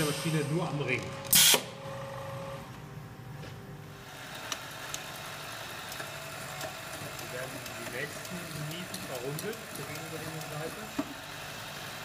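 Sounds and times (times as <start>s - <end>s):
electric motor humming: 4.0s - 12.0s.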